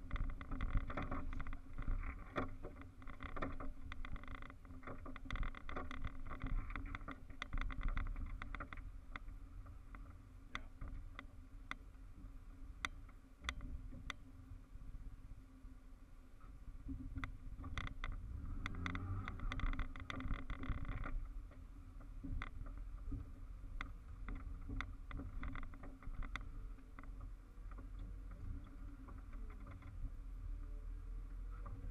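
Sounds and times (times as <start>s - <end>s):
crunching and rattling: 0.0s - 9.3s.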